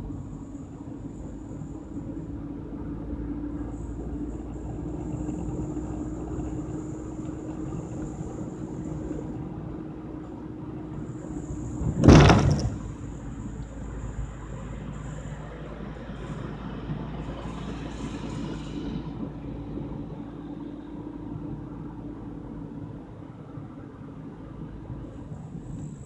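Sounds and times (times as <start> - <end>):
car engine and tyres rumbling: 0.0 - 26.0
loud thump of car jolt: 11.8 - 13.1.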